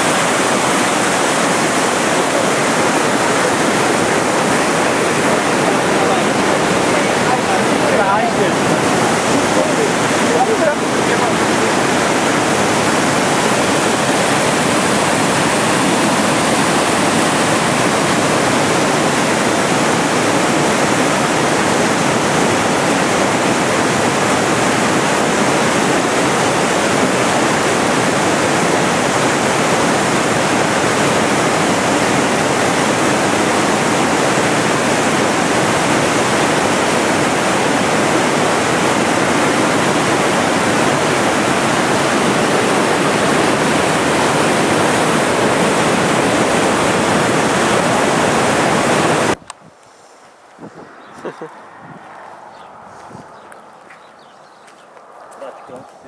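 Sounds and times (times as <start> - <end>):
waterfall and rapids rushing: 0.0 - 49.4.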